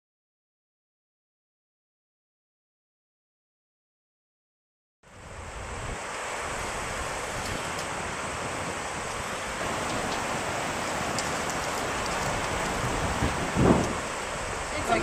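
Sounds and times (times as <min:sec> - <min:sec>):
water rushing over rocks: 0:05.1 - 0:15.0.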